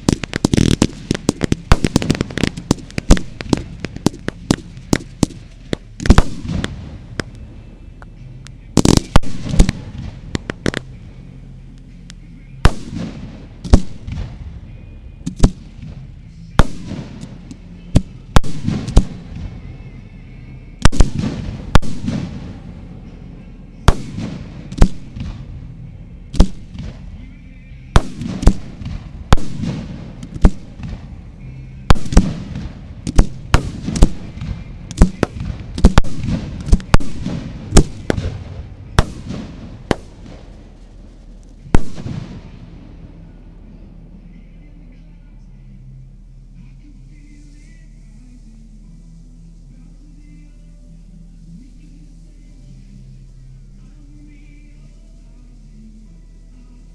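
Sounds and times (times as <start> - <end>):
fireworks bursting with bangs: 0.0 - 7.5, 8.8 - 11.1, 11.8 - 19.8, 20.8 - 23.1, 23.8 - 27.2, 27.9 - 43.2.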